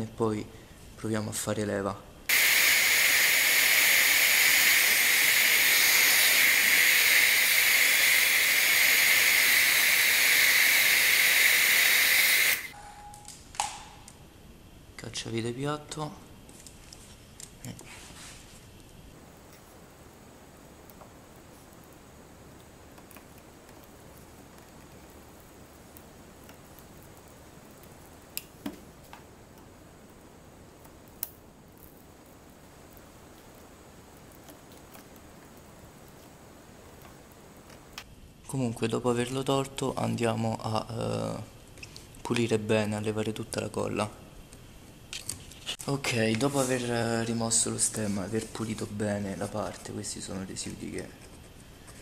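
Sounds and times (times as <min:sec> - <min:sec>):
hair dryer blowing with whine: 0:02.3 - 0:12.8.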